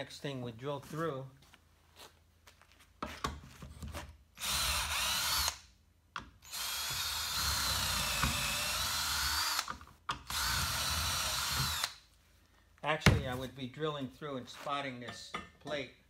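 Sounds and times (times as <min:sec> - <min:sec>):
cordless drill boring into wood: 0:04.4 - 0:05.6, 0:06.4 - 0:12.0.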